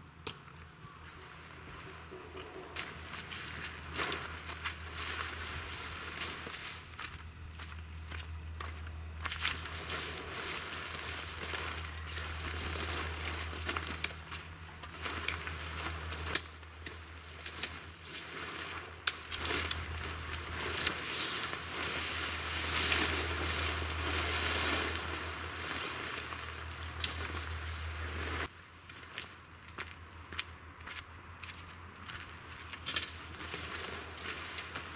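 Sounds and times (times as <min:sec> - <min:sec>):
tent fabric rustling: 0:02.8 - 0:07.0, 0:09.4 - 0:28.5
sharp clicks and crackles: 0:11.8 - 0:17.9, 0:26.8 - 0:27.6.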